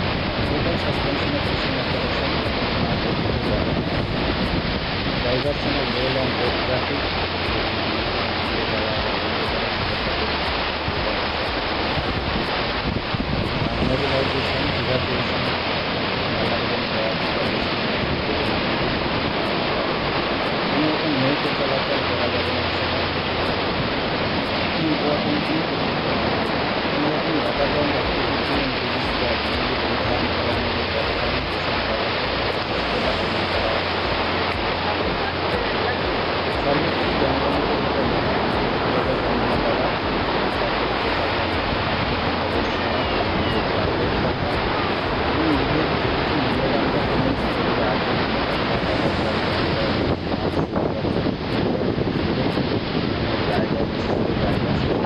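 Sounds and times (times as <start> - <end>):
rough sea surf: 0.0 - 55.0
wind rushing: 0.0 - 55.0.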